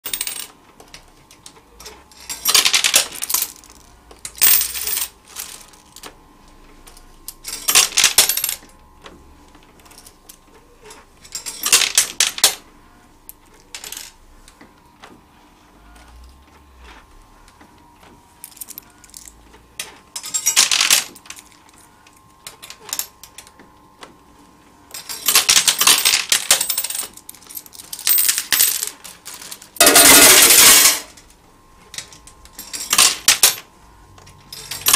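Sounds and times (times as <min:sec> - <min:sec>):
coins clattering: 0:00.0 - 0:06.1, 0:07.2 - 0:08.7, 0:09.8 - 0:12.6, 0:13.5 - 0:14.2, 0:18.4 - 0:21.8, 0:22.5 - 0:23.5, 0:24.9 - 0:31.2, 0:31.9 - 0:33.7, 0:34.4 - 0:34.9.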